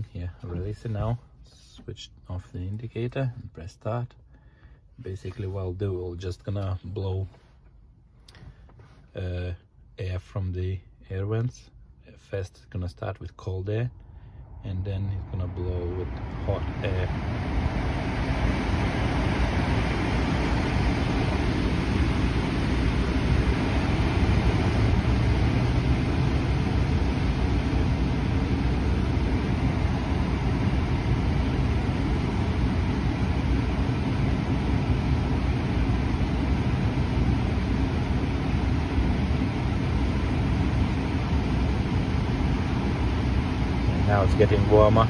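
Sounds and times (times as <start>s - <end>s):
car air blower blowing: 7.0s - 9.3s, 15.4s - 45.0s.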